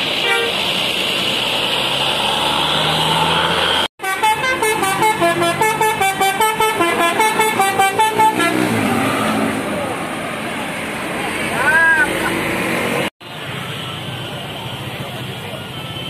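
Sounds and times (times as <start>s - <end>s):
bus engine passing: 0.0s - 15.7s
musical bus horn tune: 0.2s - 0.6s, 4.0s - 8.9s.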